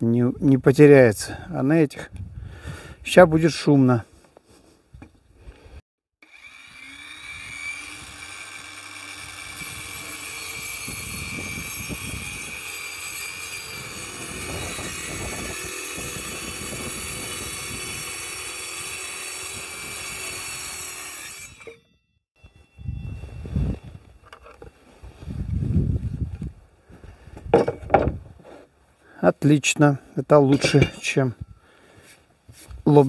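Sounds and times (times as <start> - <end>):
circular saw cutting wood: 6.2 - 22.0.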